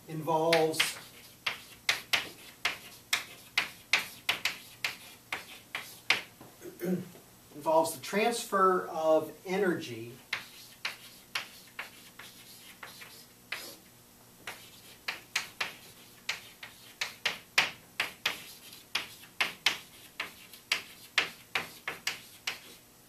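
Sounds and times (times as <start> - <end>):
chalk tapping and scratching: 0.4 - 6.3, 10.3 - 22.8.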